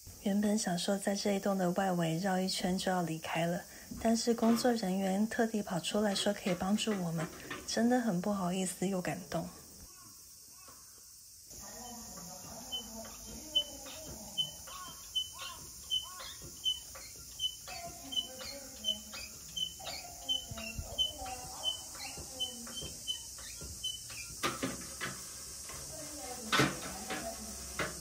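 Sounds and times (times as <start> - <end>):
lower falling bird calls: 9.8 - 24.5
birds chirping: 9.8 - 24.6.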